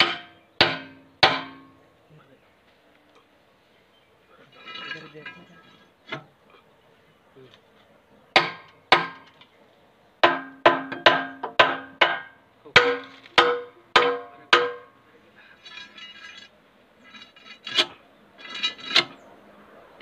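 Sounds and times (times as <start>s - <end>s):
metal clatter: 4.5s - 6.3s, 15.6s - 19.2s.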